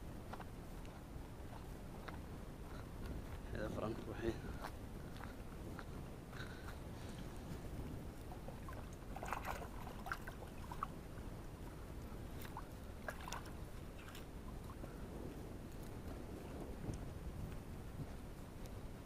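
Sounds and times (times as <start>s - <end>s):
small water splashes: 8.2s - 11.3s, 12.3s - 14.8s.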